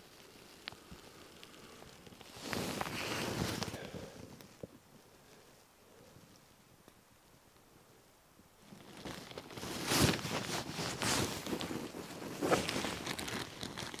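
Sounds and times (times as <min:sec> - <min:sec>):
plastic bag crinkling: 0:00.0 - 0:04.0, 0:08.6 - 0:14.0.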